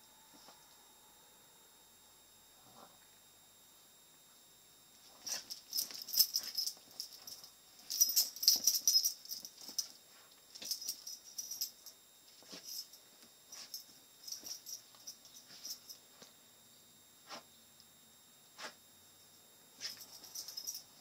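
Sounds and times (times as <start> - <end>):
animals scuffling and rattling: 5.1 - 11.7.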